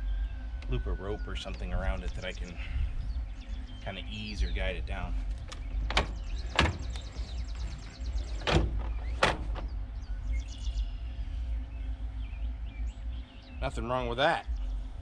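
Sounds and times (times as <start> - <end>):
wind rumble on microphone: 0.0 - 15.0
trolling motor mount clunking: 5.2 - 9.9.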